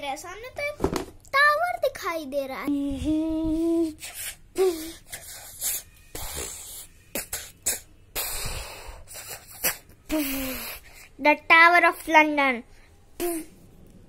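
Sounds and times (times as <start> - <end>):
breathy hisses: 3.5 - 11.2.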